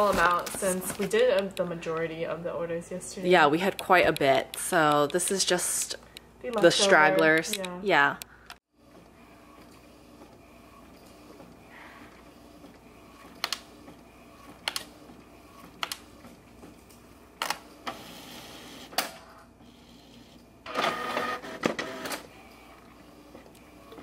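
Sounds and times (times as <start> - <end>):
printer motor whirring: 8.8 - 18.9, 19.6 - 24.0
printer mechanical clicks: 12.6 - 16.3.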